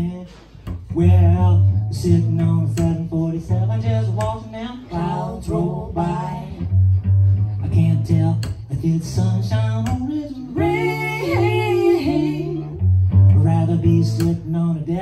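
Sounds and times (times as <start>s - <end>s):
cello playing low notes: 0.0s - 15.0s
person singing: 7.9s - 14.5s.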